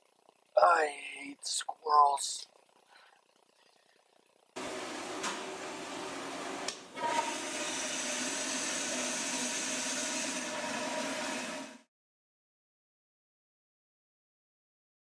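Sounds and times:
toilet flushing: 4.6 - 11.9.

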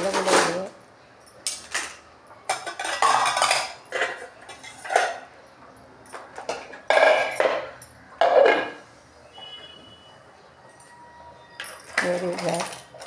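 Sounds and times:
metal pots and utensils clanking: 0.0 - 0.7, 1.4 - 5.4, 6.1 - 8.8, 11.6 - 13.0.

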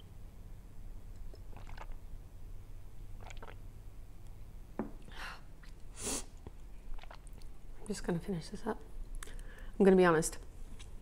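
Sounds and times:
faint low hum: 0.0 - 11.0
mouth and swallowing sounds: 1.1 - 2.2, 3.1 - 3.7, 6.4 - 7.6.

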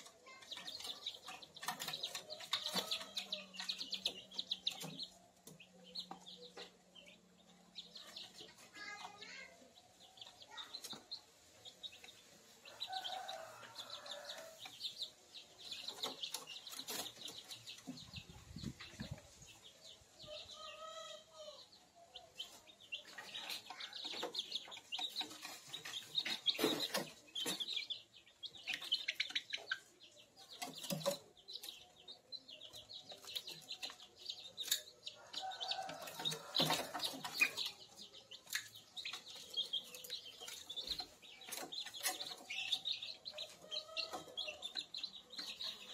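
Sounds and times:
chicks peeping: 0.0 - 45.9.

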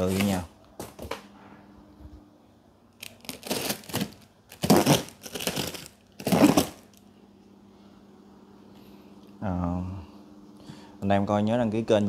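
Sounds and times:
blade slitting packing tape: 3.0 - 7.0.

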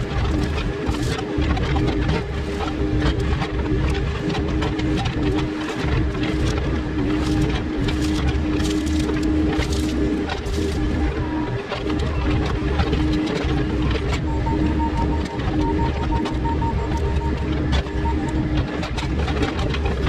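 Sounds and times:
diesel engine running: 0.0 - 20.0
hydraulic hum: 0.0 - 20.0
brush cracking: 6.2 - 10.9.

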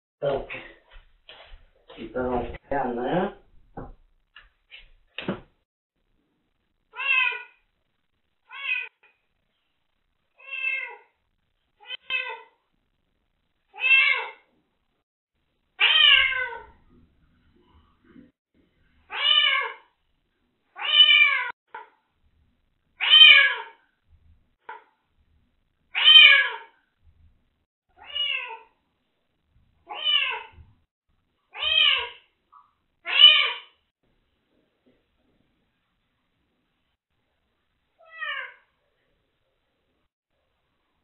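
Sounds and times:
kitten meowing: 7.0 - 7.5, 13.8 - 14.4, 15.8 - 16.7, 29.9 - 30.5, 31.5 - 32.2, 33.1 - 33.7.

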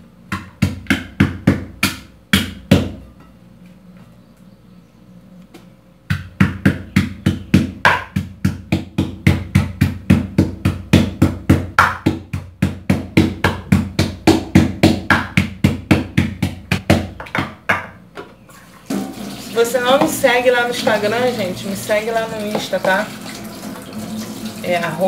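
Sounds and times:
pestle pounding in a mortar: 0.3 - 3.0, 6.1 - 18.0.

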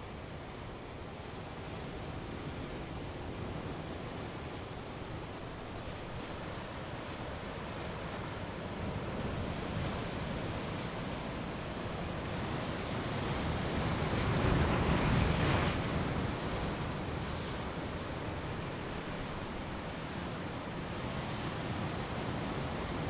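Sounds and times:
surf washing against rocks: 4.9 - 23.0.

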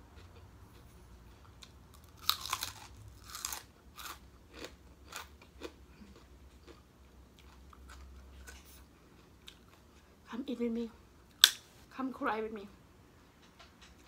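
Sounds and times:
person chewing crunchy food: 0.0 - 10.1.

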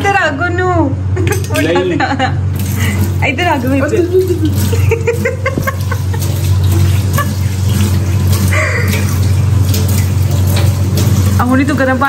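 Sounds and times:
water running from a tap: 2.5 - 12.0.

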